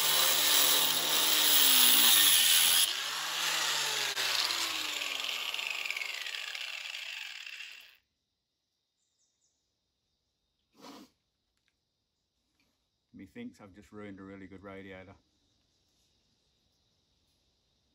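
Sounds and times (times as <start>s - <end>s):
grinder winding down whine: 0.0s - 7.9s
angle grinder cutting metal: 0.0s - 8.0s.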